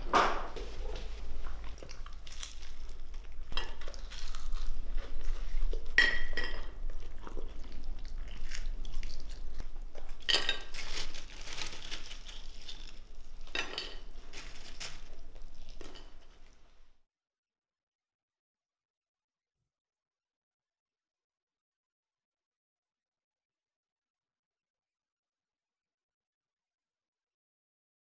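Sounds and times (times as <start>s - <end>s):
cutlery and plates clinking: 6.0s - 6.8s, 10.2s - 12.0s, 13.4s - 15.1s, 15.7s - 16.4s.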